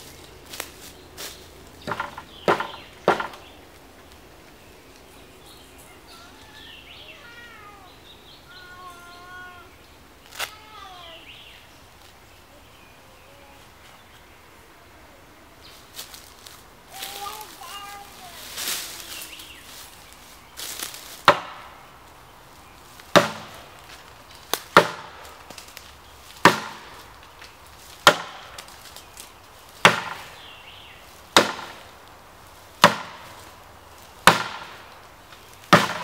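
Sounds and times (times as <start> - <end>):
hatchet striking wood: 1.9 - 3.4, 21.3 - 21.6, 23.1 - 23.5, 24.8 - 25.1, 28.0 - 28.4, 29.8 - 30.2, 31.4 - 31.8, 32.8 - 33.2, 34.2 - 34.8, 35.7 - 36.0
faint high wavering calls: 4.9 - 11.8.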